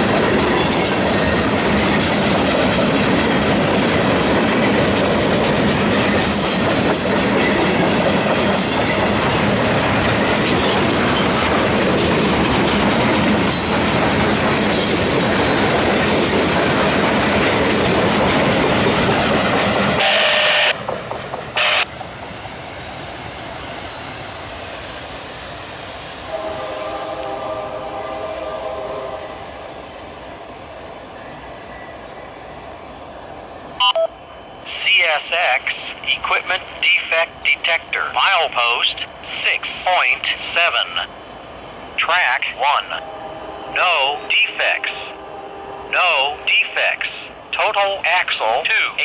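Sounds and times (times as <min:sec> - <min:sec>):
train wheel squeal: 0:00.0 - 0:03.0, 0:06.0 - 0:07.6, 0:08.5 - 0:11.6, 0:20.3 - 0:34.7
train wheels clattering on rail: 0:00.0 - 0:20.0, 0:20.7 - 0:22.2.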